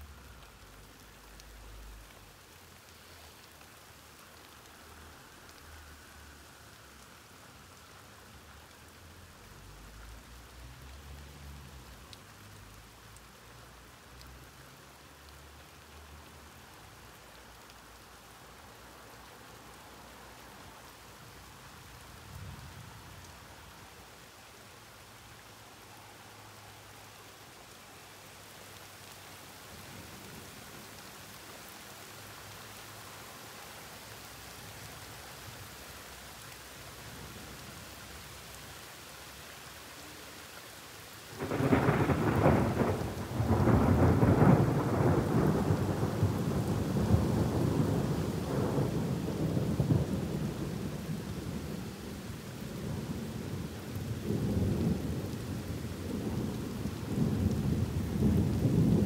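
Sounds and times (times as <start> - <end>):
steady rain: 0.0 - 59.0
thunder clap and rumble: 41.4 - 50.8, 54.2 - 59.0.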